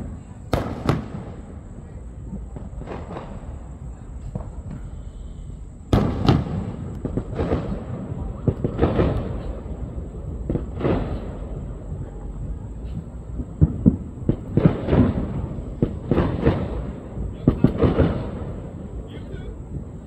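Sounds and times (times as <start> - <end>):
sharp bangs: 5.9 - 11.9.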